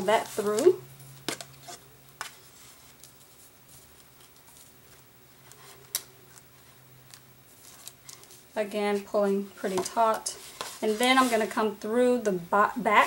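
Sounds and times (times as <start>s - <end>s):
paper rustling: 1.3s - 11.7s.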